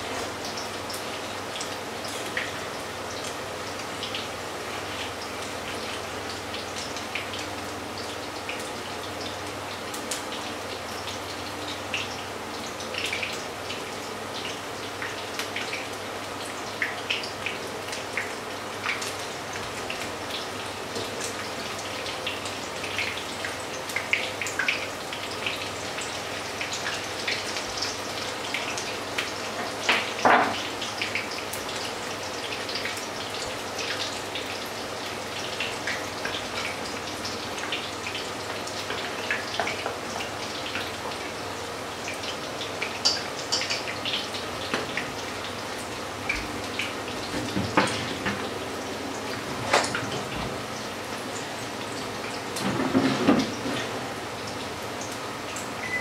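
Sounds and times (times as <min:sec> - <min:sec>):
fritters sizzling in oil: 0:00.0 - 0:56.0.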